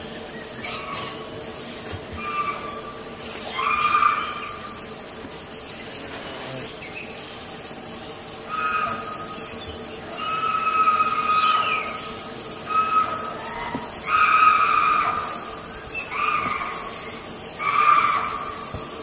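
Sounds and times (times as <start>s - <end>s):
insect drone: 0.0s - 19.0s
animal high-pitched cries: 2.2s - 4.6s, 8.5s - 9.3s, 10.1s - 17.0s, 17.6s - 18.6s.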